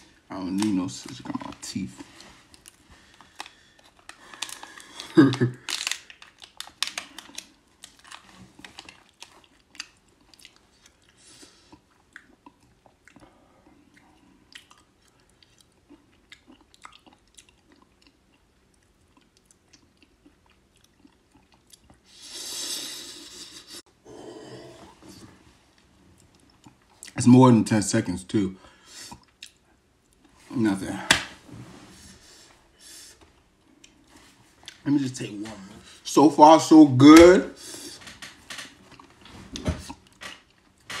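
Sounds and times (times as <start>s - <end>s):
crunching and chewing peanuts: 0.6s - 22.1s.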